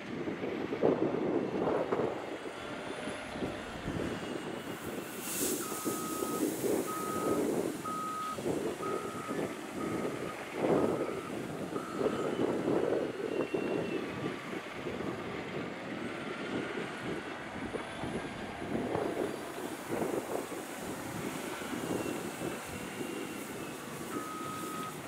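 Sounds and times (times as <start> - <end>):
diesel engine under load: 0.0 - 25.0
reverse alarm beeping: 5.6 - 12.5, 23.1 - 25.0.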